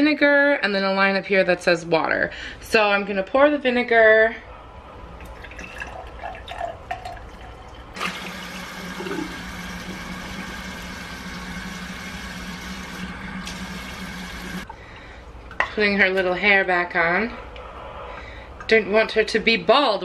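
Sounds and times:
liquid trickling into container: 5.2 - 11.6
faucet water running: 5.2 - 14.7.

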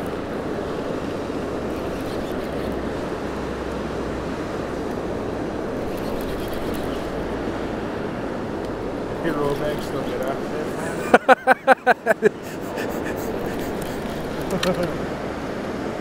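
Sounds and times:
river rushing: 0.0 - 16.0.

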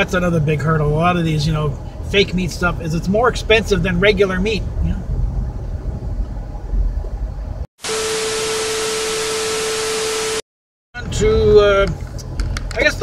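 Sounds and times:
road rumble inside car: 0.0 - 7.7, 11.0 - 13.0
tv static hiss: 7.8 - 10.4.

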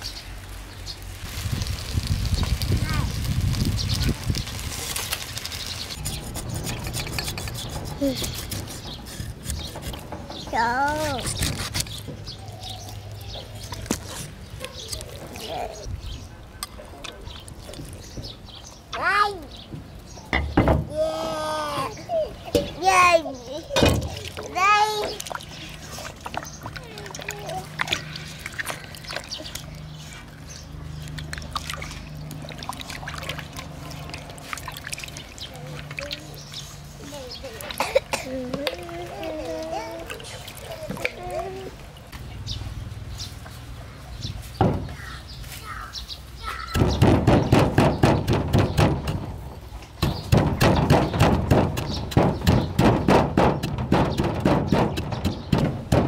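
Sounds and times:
hands washing fish: 0.0 - 15.8, 23.6 - 47.0
water sloshing in a steel basin: 23.6 - 43.8
wooden pestle pounding in mortar: 46.7 - 49.3, 50.0 - 56.0.

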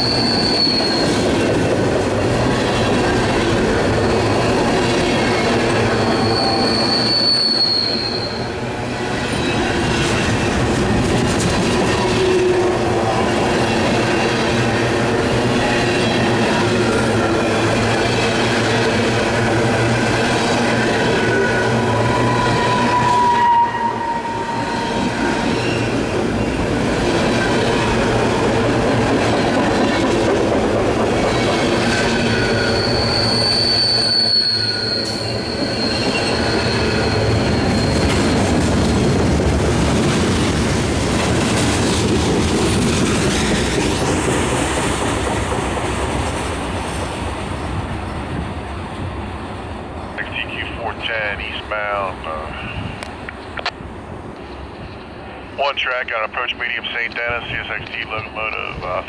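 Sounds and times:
wheel squeal: 0.0 - 1.3, 5.9 - 8.5, 32.2 - 38.6
train wheels rumbling on rail: 0.0 - 59.0.

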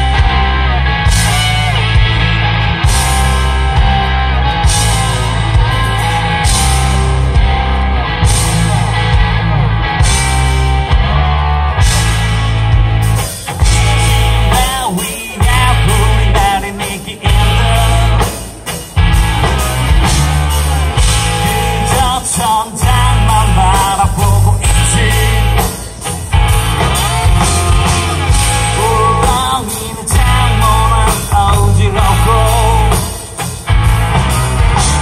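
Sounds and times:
drums: 0.0 - 35.0
electric guitars: 0.0 - 35.0
person singing: 13.9 - 18.5, 21.0 - 25.9, 28.4 - 33.3.

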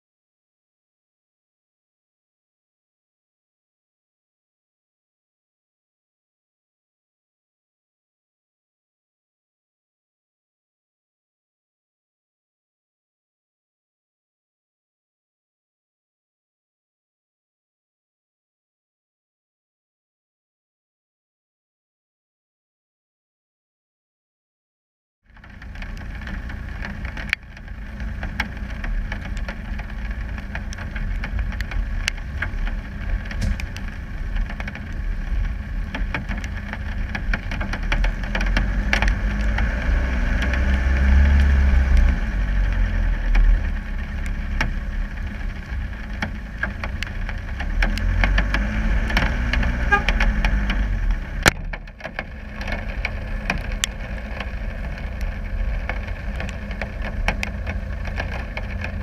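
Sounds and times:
diesel engine under load: 25.3 - 59.0.

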